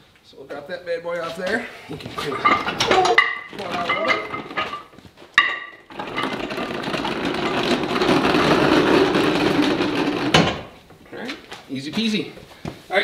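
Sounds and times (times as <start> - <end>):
metal grinding scrape: 5.8 - 10.7
loud metal clunk: 9.6 - 10.8.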